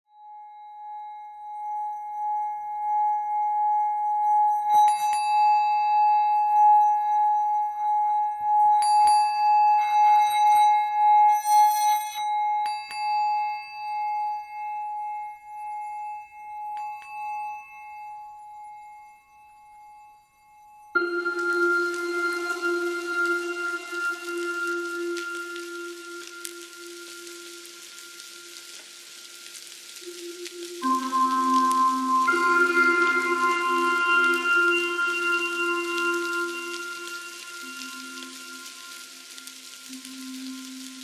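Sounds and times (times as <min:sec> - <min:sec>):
shimmering high chimes: 0:00.1 - 0:41.0
singing bowl ringing: 0:00.1 - 0:41.0
bell-like strikes: 0:21.0 - 0:29.2, 0:30.0 - 0:41.0.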